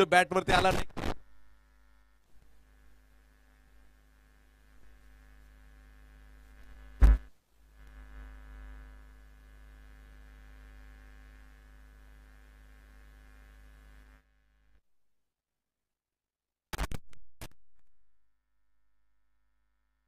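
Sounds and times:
electrical mains hum: 0:00.0 - 0:14.8.

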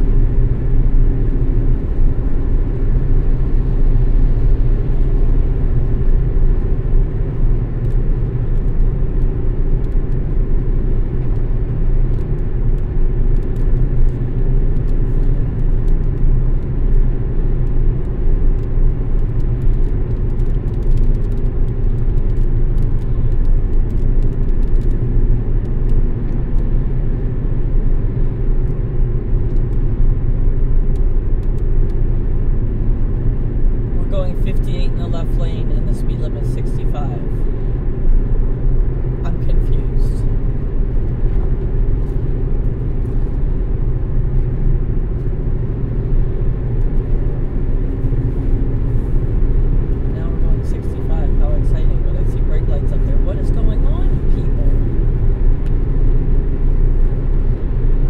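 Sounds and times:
car driving on wet road: 0:00.0 - 0:58.0.

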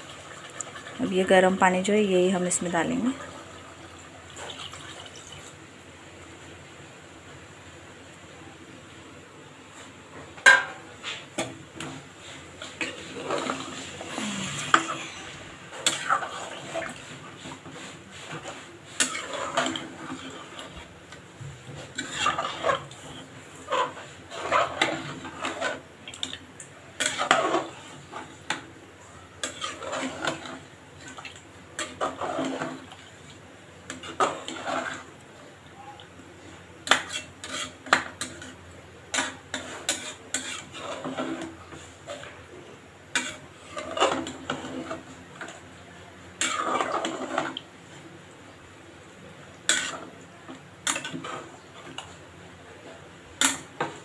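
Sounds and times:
spoon scraping and clinking pot: 0:18.2 - 0:20.6, 0:36.8 - 0:41.5.

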